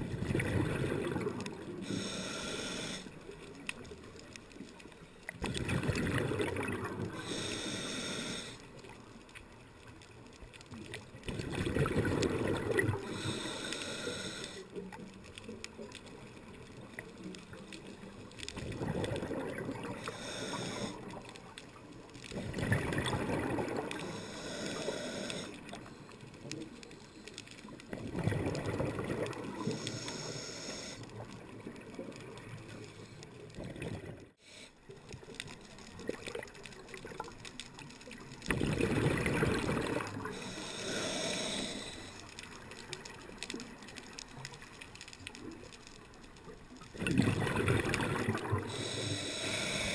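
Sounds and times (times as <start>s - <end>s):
exhaled bubbles rumbling: 0.0s - 1.8s, 5.4s - 7.2s, 11.0s - 13.3s, 18.5s - 20.0s, 22.3s - 24.0s, 27.8s - 29.8s, 33.6s - 34.3s, 38.3s - 40.5s, 46.7s - 48.8s
underwater regulator breathing: 0.6s - 3.6s, 6.8s - 8.8s, 12.1s - 14.9s, 19.8s - 21.4s, 22.4s - 27.8s, 28.5s - 31.3s, 39.5s - 42.8s, 47.4s - 49.9s.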